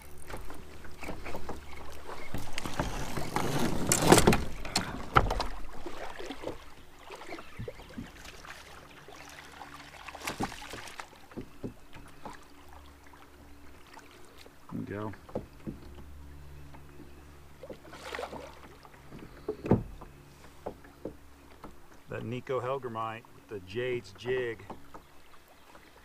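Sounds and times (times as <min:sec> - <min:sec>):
fish splashing in water: 0:04.6 - 0:11.5, 0:17.6 - 0:19.4.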